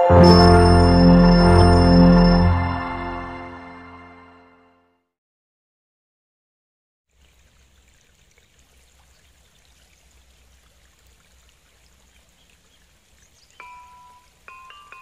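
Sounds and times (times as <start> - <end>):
faint flowing river water: 7.1 - 15.0.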